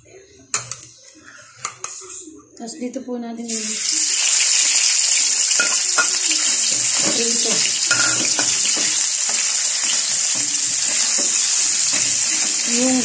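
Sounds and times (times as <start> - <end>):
meat sizzling in hot oil: 3.5 - 13.0.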